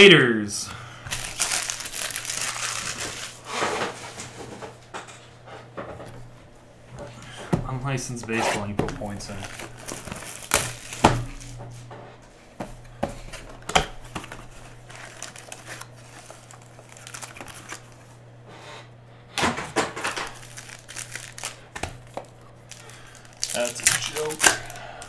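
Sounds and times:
foil wrappers crinkling: 0:01.0 - 0:04.5, 0:08.9 - 0:11.6, 0:13.1 - 0:18.2, 0:19.8 - 0:25.0.

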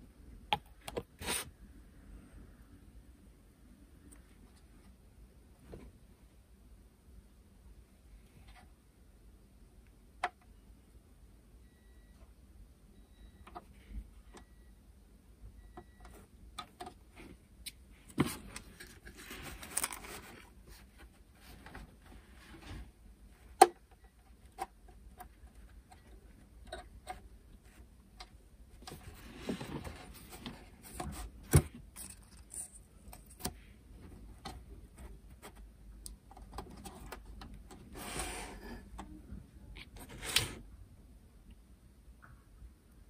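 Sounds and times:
plastic parts scraping: 0:18.1 - 0:20.6, 0:28.8 - 0:33.6.

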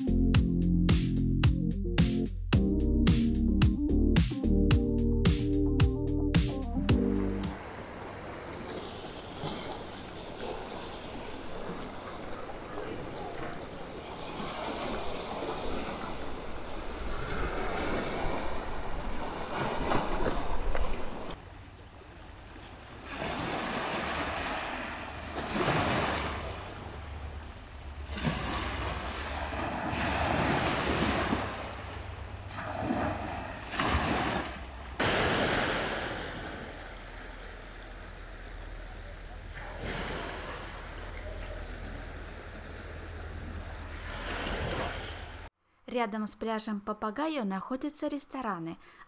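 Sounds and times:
wind: 0:04.8 - 0:45.6
sea waves breaking on beach: 0:07.4 - 0:45.5.

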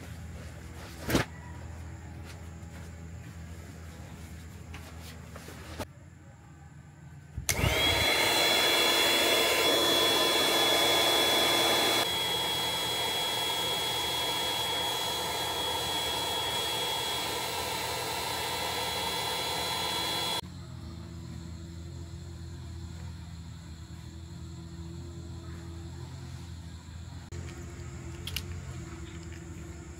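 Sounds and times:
electric air pump whining: 0:07.5 - 0:20.4.

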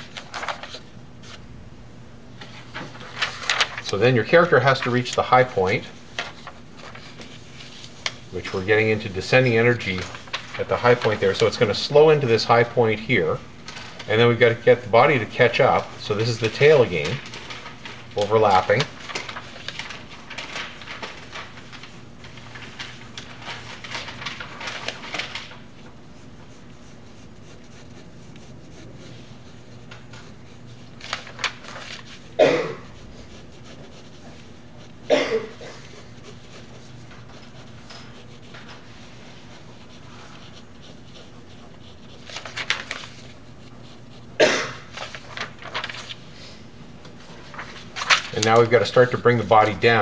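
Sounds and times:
pencil scratching on paper: 0:14.1 - 0:19.6, 0:20.6 - 0:24.2, 0:25.8 - 0:45.2.

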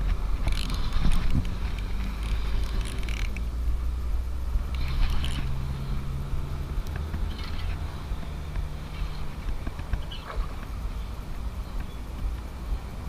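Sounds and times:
steady low rumble: 0:00.0 - 0:13.0
fishing reel winding: 0:00.4 - 0:03.5, 0:04.7 - 0:05.8.

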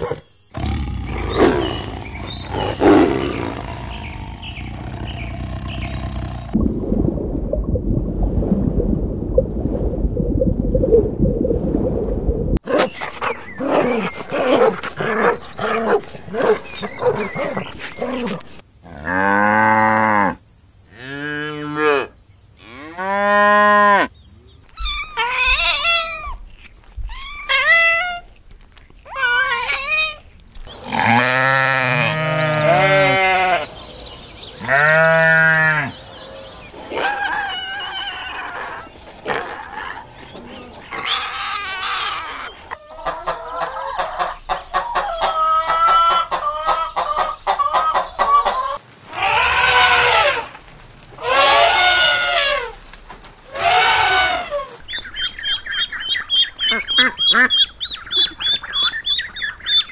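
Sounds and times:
sheep bleating: 0:31.0 - 0:33.7.

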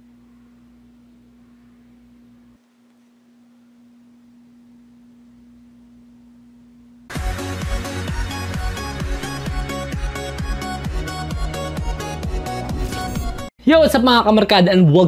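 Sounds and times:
faint steady hum: 0:00.0 - 0:07.1
loud music with a beat: 0:07.1 - 0:13.5.

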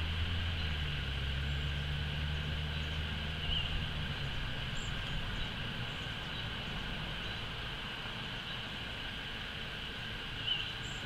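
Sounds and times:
distant engine humming: 0:00.0 - 0:11.0.

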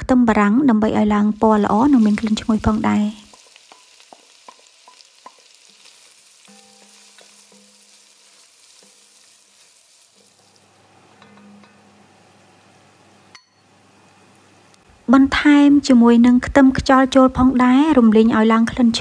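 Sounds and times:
onions sizzling in butter: 0:00.6 - 0:13.3.

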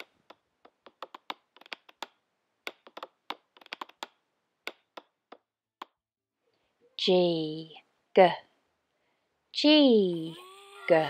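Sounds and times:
faint irregular clicks and taps: 0:00.0 - 0:06.0.

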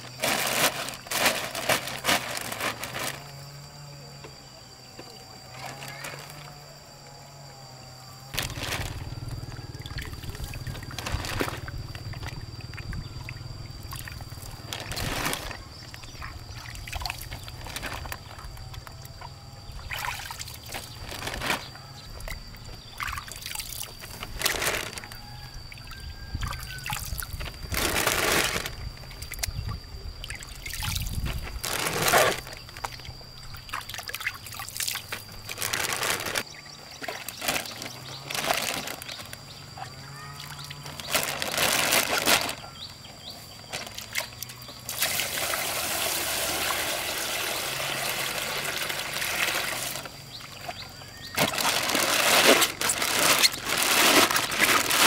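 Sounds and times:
water splashing and pouring: 0:44.9 - 0:50.7.

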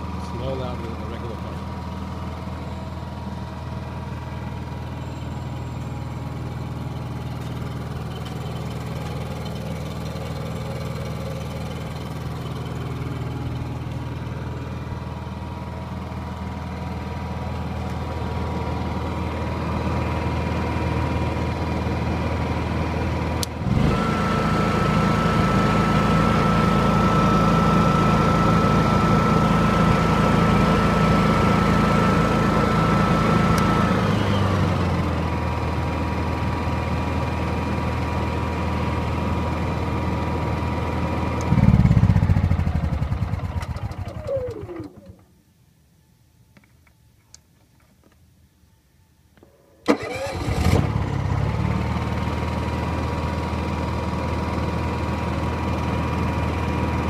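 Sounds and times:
generator engine running: 0:00.0 - 0:45.3, 0:49.8 - 0:57.0.

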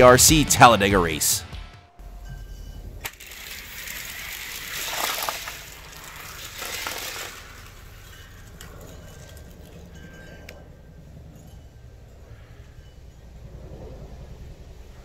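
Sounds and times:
toy cars rattling down plastic track: 0:03.0 - 0:10.0.

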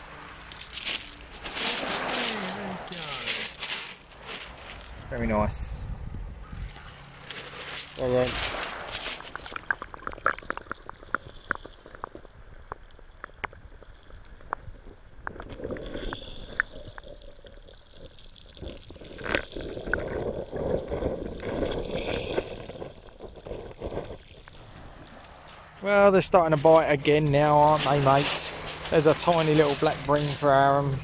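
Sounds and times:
water sloshing underwater: 0:06.6 - 0:25.8.

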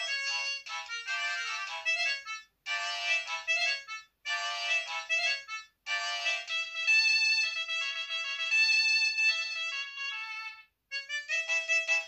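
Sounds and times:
polyphonic phone ringtone: 0:00.0 - 0:07.4.

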